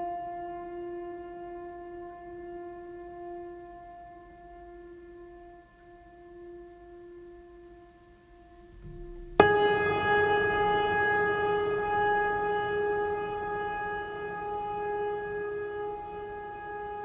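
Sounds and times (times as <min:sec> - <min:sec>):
quiet music drone: 0:00.0 - 0:17.0
sustained music chord: 0:08.6 - 0:17.0.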